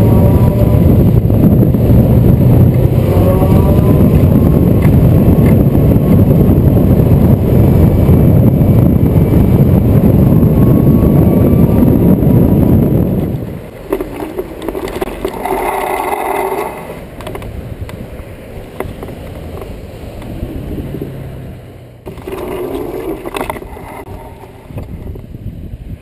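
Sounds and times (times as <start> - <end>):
cars passing: 0.0 - 26.0
wind-like rush: 0.0 - 26.0.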